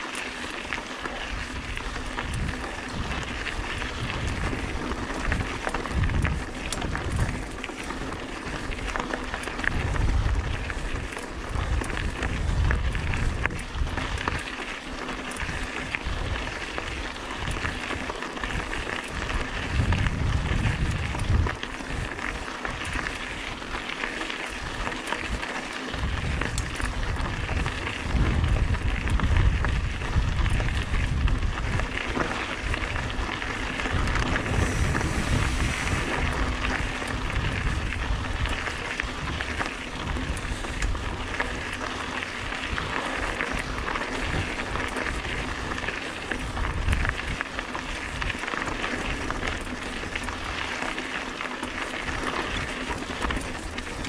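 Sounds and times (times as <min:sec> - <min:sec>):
bike rattles and clicks: 0:00.0 - 0:54.0
bike tyres grinding over gravel: 0:00.0 - 0:54.0
wind buffeting microphone: 0:01.2 - 0:09.0, 0:09.6 - 0:14.4, 0:18.4 - 0:22.1, 0:25.9 - 0:48.4.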